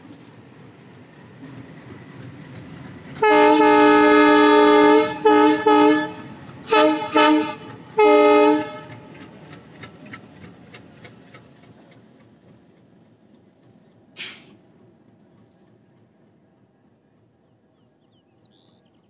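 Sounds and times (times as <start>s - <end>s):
locomotive air horn blasts: 3.2s - 9.0s
wheel clicks over rail joints: 8.8s - 14.5s.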